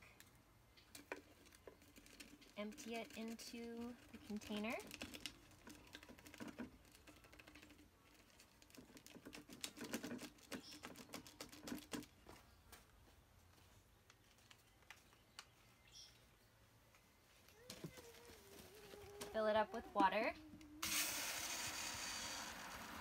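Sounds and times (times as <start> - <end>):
packet taps and crinkles: 0.8 - 12.2.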